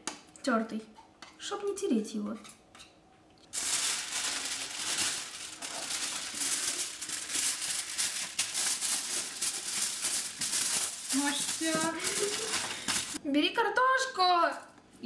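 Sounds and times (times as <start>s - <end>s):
aluminium foil crinkling: 3.5s - 13.2s.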